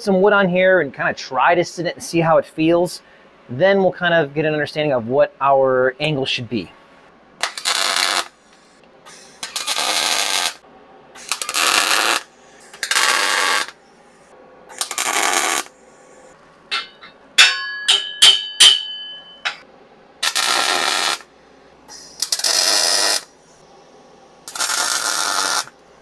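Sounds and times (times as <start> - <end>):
arc welding crackling and hissing: 7.4 - 10.6, 11.2 - 16.4, 20.2 - 21.3, 21.9 - 23.6, 24.4 - 25.9
steel parts clinking: 16.7 - 19.6.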